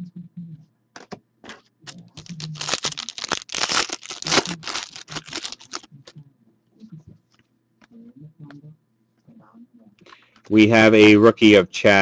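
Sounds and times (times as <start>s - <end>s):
foil wrapper tearing and crinkling: 2.2s - 5.9s.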